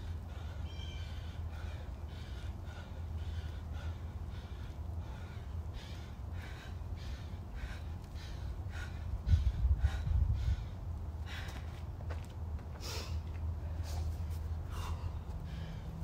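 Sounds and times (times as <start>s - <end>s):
man breathing hard and fast: 0.0s - 16.0s
wind rumbling on microphone: 5.0s - 12.6s.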